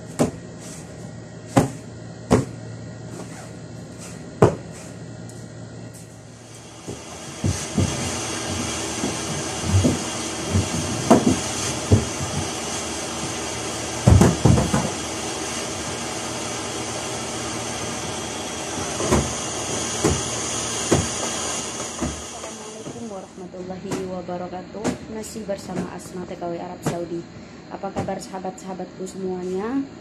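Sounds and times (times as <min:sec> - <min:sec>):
vacuum cleaner running: 0:00.0 - 0:30.0
knocks and thumps: 0:01.6 - 0:02.6, 0:04.4 - 0:04.7, 0:06.8 - 0:12.6, 0:14.0 - 0:15.0, 0:18.8 - 0:23.1.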